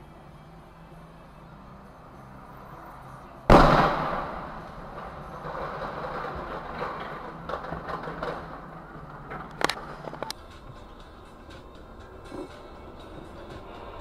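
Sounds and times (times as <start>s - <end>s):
crashing and clattering debris: 3.5s - 10.3s
truck crash impact: 3.5s - 10.3s.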